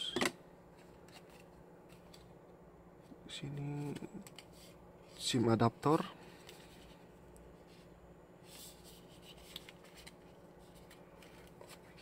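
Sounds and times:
paper rustling: 0:08.4 - 0:12.0.

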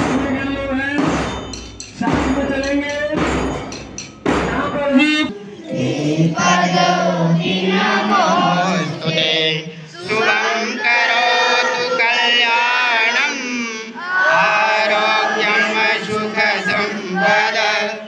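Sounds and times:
crowd singing in unison: 0:04.2 - 0:18.0.

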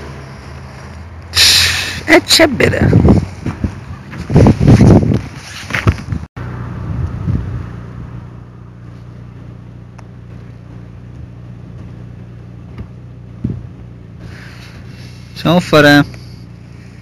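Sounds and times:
steady low hum: 0:06.5 - 0:17.0.

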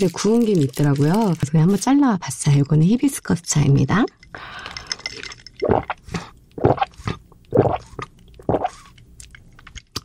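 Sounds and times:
gulping swallows: 0:05.7 - 0:09.0.

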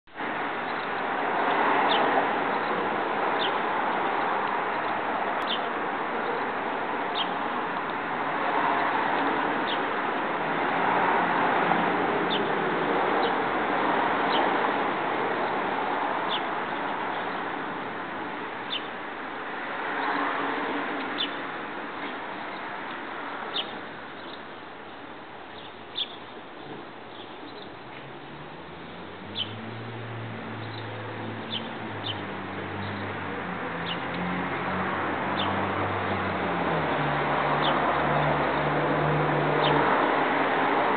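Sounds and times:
high bird chirps: 0:25.5 - 0:26.3.

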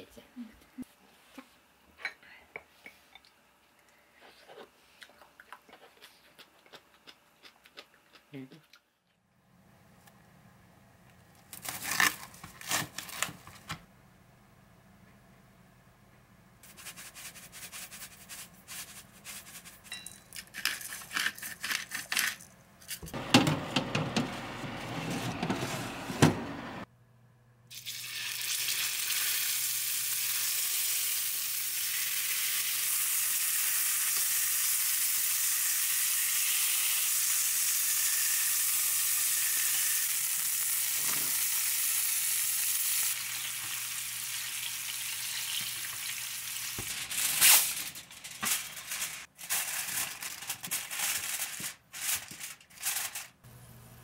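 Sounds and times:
steaks sizzling in a frying pan: 0:28.0 - 0:46.6.

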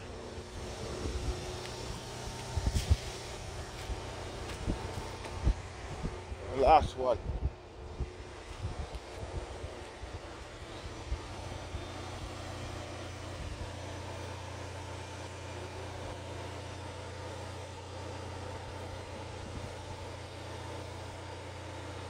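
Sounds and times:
faint high hum: 0:00.0 - 0:22.0
steady low drone: 0:00.0 - 0:22.0.

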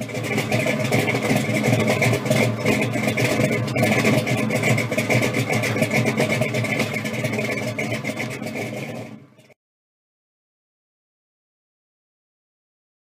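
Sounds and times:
car engine idling: 0:00.0 - 0:09.6.

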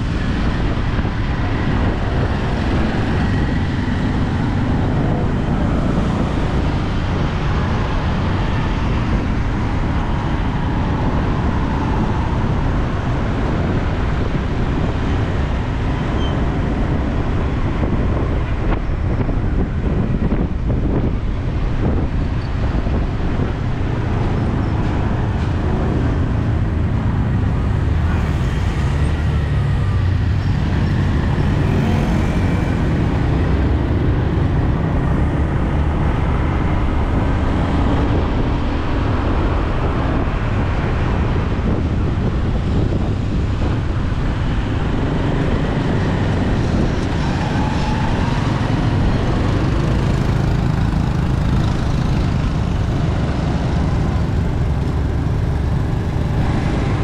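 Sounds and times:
city street traffic: 0:00.0 - 0:57.0
wind buffeting microphone: 0:00.0 - 0:57.0.

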